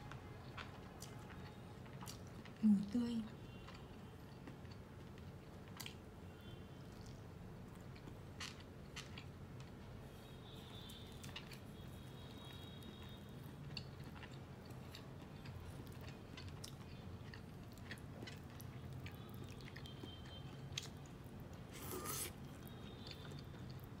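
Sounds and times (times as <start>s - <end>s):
bite of food: 13.7s - 23.9s.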